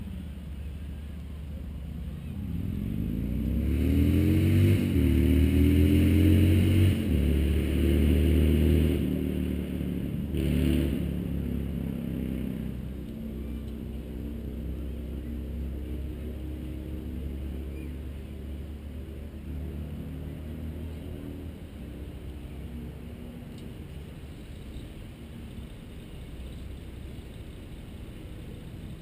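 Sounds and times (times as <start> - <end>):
vehicle engine accelerating past: 2.1 - 24.8.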